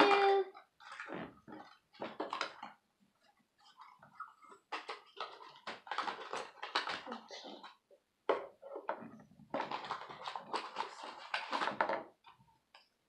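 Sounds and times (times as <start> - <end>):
toy packaging crinkling and rustling: 0.0 - 2.8, 3.7 - 7.8, 9.5 - 12.2.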